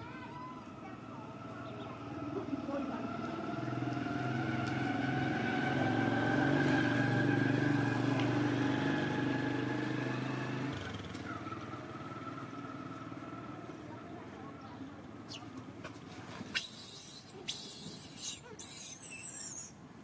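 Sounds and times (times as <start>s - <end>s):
vehicle engine running: 0.8s - 15.8s.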